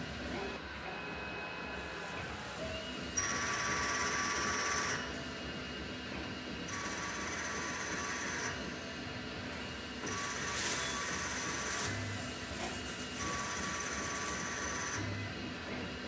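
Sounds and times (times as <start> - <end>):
lathe spindle running: 6.6 - 11.9.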